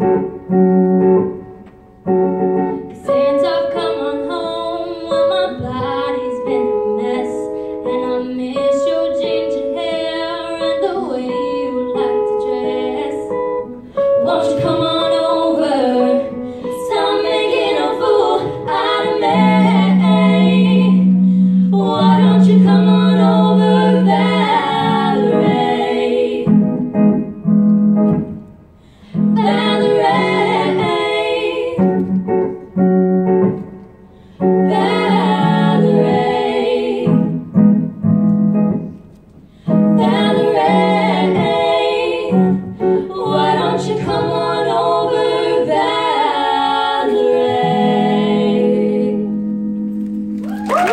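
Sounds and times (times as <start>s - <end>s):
women singing in harmony: 2.6s - 27.3s, 29.1s - 32.7s, 34.4s - 37.8s, 39.7s - 49.9s.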